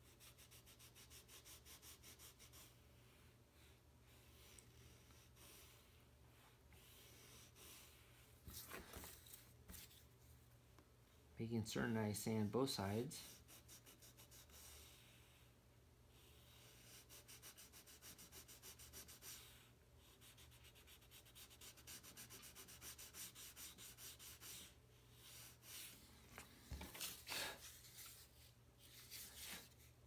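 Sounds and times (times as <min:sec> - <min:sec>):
sandpaper rubbing wood: 0:00.1 - 0:02.7, 0:13.2 - 0:15.0, 0:16.6 - 0:26.0.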